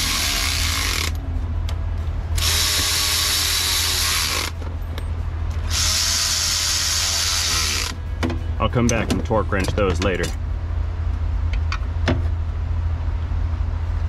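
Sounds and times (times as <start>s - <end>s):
electric ratchet whirring: 0.0s - 1.2s, 2.3s - 4.6s, 5.6s - 8.0s.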